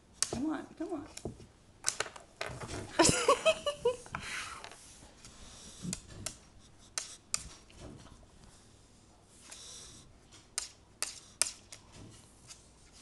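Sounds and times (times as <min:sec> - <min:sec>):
dog sniffing and snorting: 0:04.2 - 0:13.0.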